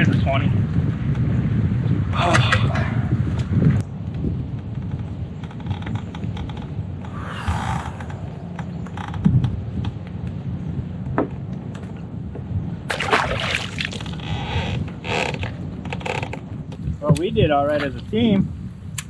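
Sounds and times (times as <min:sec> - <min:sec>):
low wind rumble: 0:00.0 - 0:19.0
short splash: 0:12.9 - 0:14.2.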